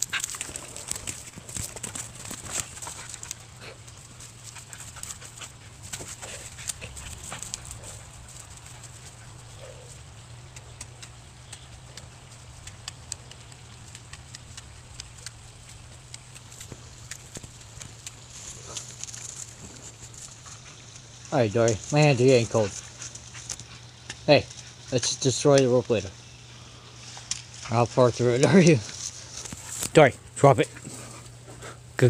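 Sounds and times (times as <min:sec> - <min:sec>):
dog chewing rope: 0:00.0 - 0:24.9.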